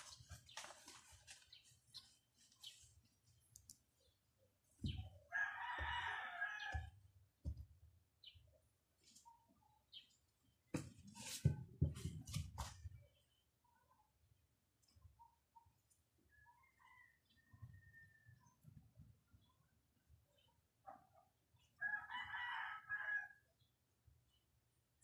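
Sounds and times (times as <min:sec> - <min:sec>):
rooster crowing: 0:05.3 - 0:06.9, 0:21.8 - 0:23.4.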